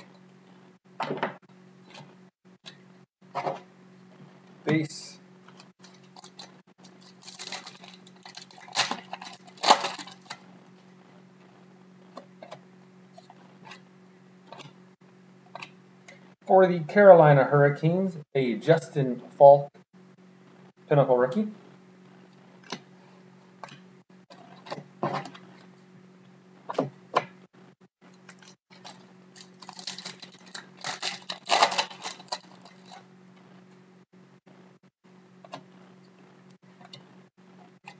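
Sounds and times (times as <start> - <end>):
foil wrapper tearing and crinkling: 5.8 - 10.4, 28.4 - 33.0.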